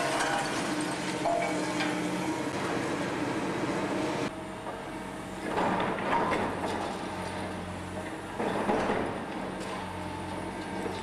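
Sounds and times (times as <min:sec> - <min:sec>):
debris crashing: 0:00.0 - 0:01.6
concrete rubble clattering: 0:00.0 - 0:01.9
diesel engines running: 0:00.0 - 0:11.0.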